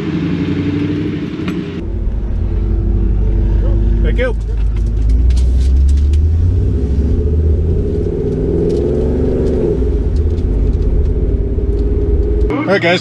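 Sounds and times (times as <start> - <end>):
pickup engine rumbling: 0.0 - 13.0.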